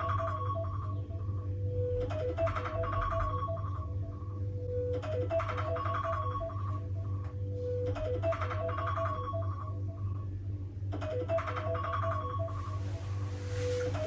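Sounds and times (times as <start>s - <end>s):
phone alarm ringtone: 1.7s - 6.9s.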